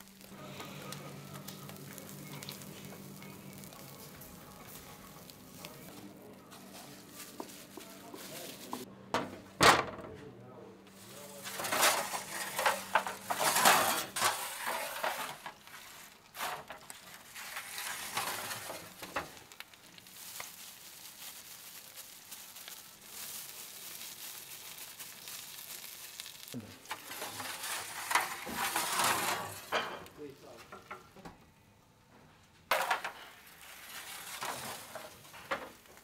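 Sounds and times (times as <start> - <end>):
steady sizzling hiss: 0.0 - 8.9, 10.7 - 36.0
clay dishes scraping on metal sheet: 11.5 - 15.5, 26.9 - 30.1.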